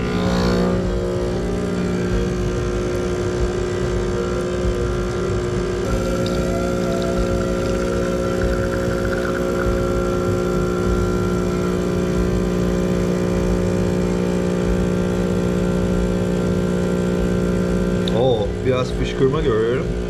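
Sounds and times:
espresso machine pump humming: 0:00.0 - 0:20.0.

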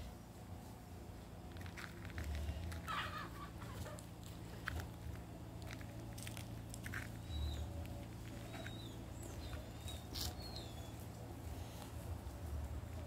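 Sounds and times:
low outdoor rumble: 0:00.0 - 0:13.0.

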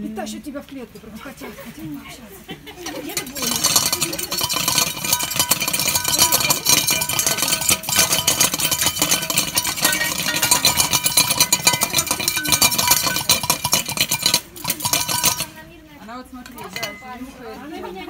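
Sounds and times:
metal bowl clattering against mesh: 0:02.8 - 0:15.8, 0:16.4 - 0:17.4.

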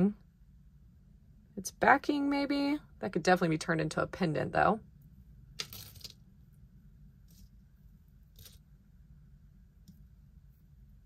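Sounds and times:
low steady hum: 0:00.0 - 0:11.0
jewelry handling rustles and scrapes: 0:05.6 - 0:06.3, 0:07.2 - 0:08.7.

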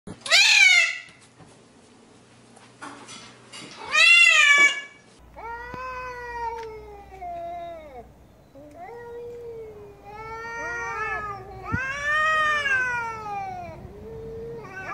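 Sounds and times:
cat meowing: 0:03.8 - 0:14.9
cat yowling: 0:03.8 - 0:14.9.

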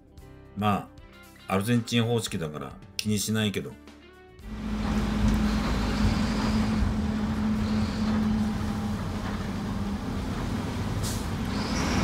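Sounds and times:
bus engine and road drone: 0:04.4 - 0:12.0
short hiss: 0:11.0 - 0:12.0.

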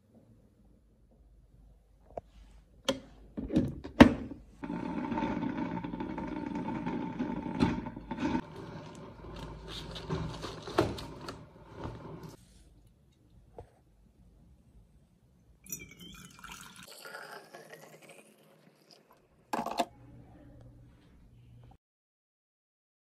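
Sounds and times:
coffee maker brewing: 0:04.6 - 0:12.4, 0:15.7 - 0:19.8.

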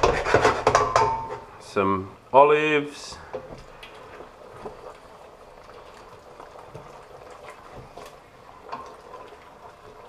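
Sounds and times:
spoon knocking against pot: 0:00.0 - 0:01.4
wooden spoon stirring: 0:03.1 - 0:10.0
sauce simmering and bubbling: 0:03.2 - 0:10.0.

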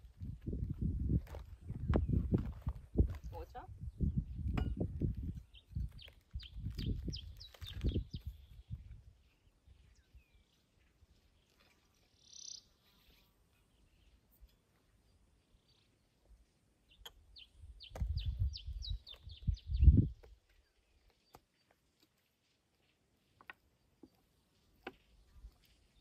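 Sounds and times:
bird chirping: 0:05.3 - 0:16.2, 0:16.8 - 0:21.8.

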